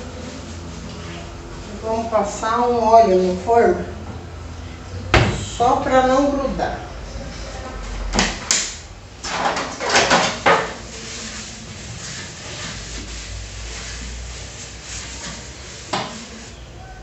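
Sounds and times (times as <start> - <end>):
rubbing oil on tray: 10.6 - 16.6.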